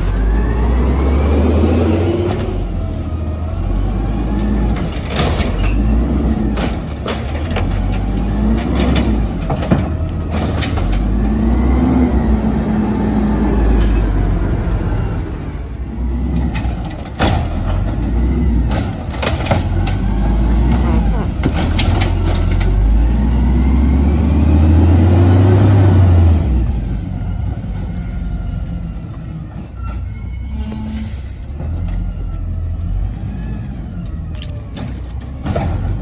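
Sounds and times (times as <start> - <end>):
garbage truck engine revving: 0.0 - 13.6, 17.6 - 27.0.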